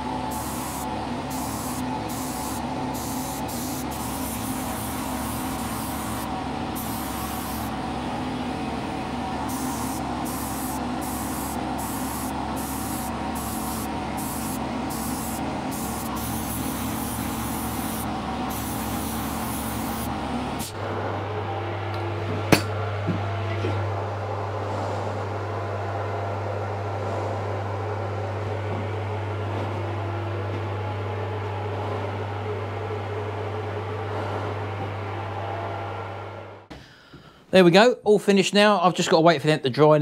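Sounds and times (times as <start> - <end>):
steady low hum: 0.0 - 37.5
ventilation fan: 0.0 - 40.0
spray gun hissing: 0.3 - 7.8, 9.5 - 20.8.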